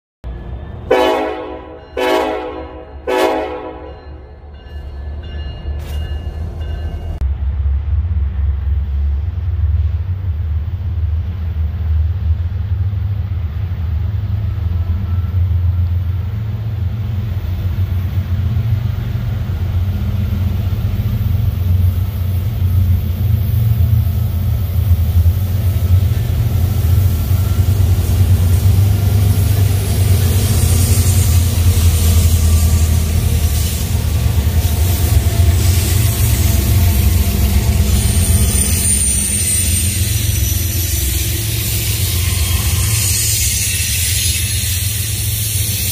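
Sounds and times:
diesel locomotives rumbling: 0.2 - 45.9
hiss of wheels on rails: 15.5 - 45.9.

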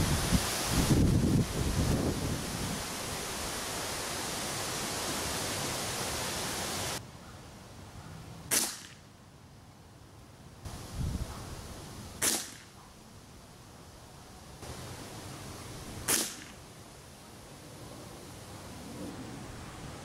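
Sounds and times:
wind rushing over microphone: 0.0 - 3.8, 10.7 - 11.8
air rifle shot: 8.5 - 9.0, 12.2 - 12.7, 16.0 - 16.6.

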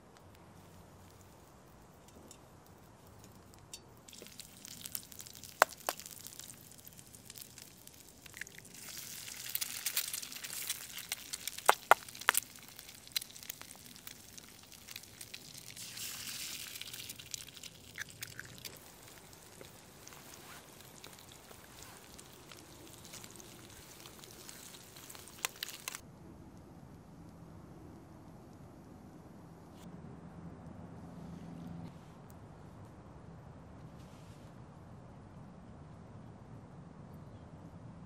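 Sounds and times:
wood fire popping and cracking: 0.2 - 26.0
food sizzling in a pan: 4.1 - 26.0.

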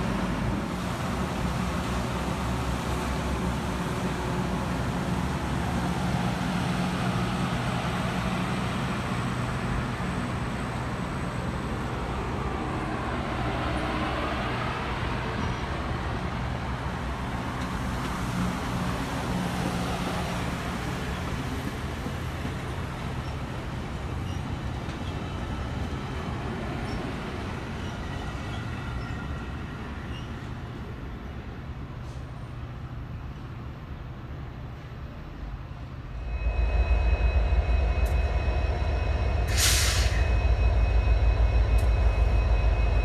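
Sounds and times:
train cars rolling on track: 0.0 - 43.0
low hum: 36.0 - 43.0.

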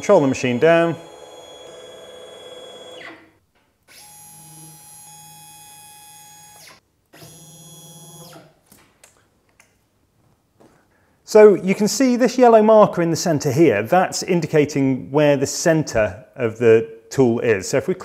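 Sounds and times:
stepper motors whining: 0.0 - 3.2.

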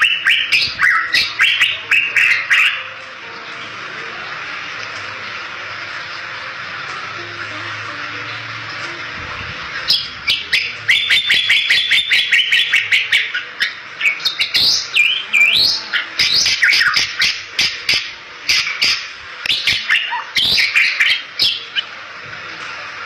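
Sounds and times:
bird singing chattering song: 0.0 - 3.0, 9.8 - 21.9.

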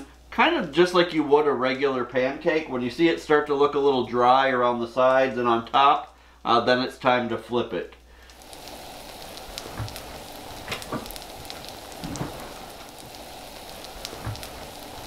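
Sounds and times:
batter sizzling in oil: 8.0 - 15.0
oil popping and crackling: 8.1 - 15.0.

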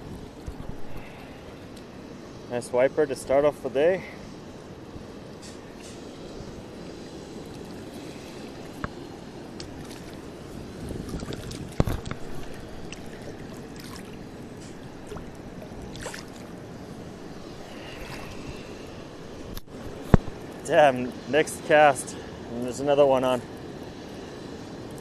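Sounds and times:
flowing river water: 0.0 - 2.2, 2.8 - 25.0
fish splashing: 7.5 - 18.8.

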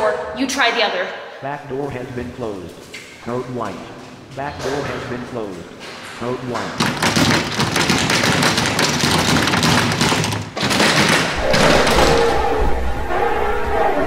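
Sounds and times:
glass doors rattling: 4.4 - 12.6.

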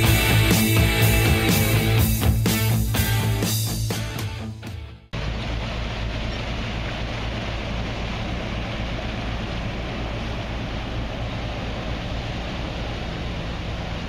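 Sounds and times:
boat engine drone: 5.2 - 14.0.

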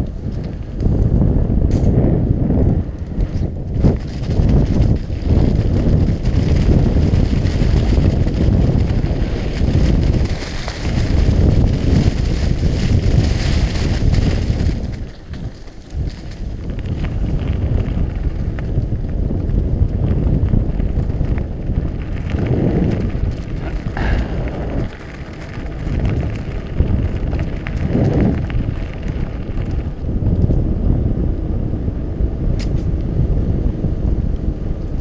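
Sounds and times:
bike rattles: 0.0 - 35.0
wind rumbling on microphone: 0.0 - 35.0
tyres crunching on gravel: 3.8 - 30.1.

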